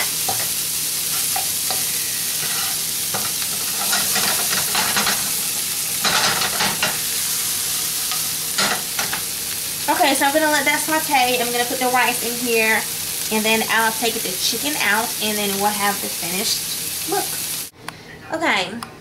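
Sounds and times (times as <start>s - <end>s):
vegetables sizzling in oil: 0.0s - 17.7s
spatula scraping a pan: 0.2s - 5.4s.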